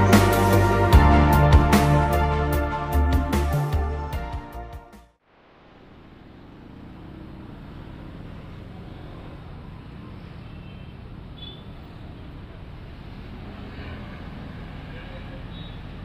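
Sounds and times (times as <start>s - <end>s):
low traffic hum: 5.3s - 16.0s.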